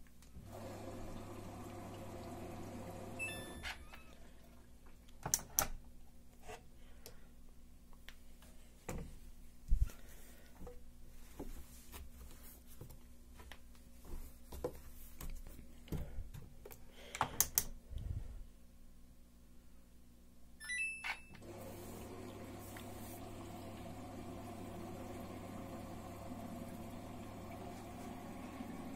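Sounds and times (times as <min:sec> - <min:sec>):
washing machine humming: 0:00.4 - 0:05.0, 0:21.4 - 0:28.9
short electronic beep: 0:03.2 - 0:04.1.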